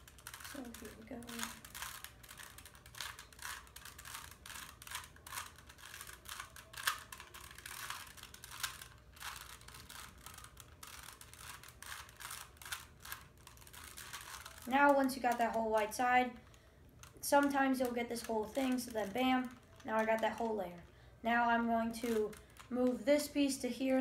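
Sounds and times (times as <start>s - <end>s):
rapid plastic clicks and clatter: 0.0s - 20.9s.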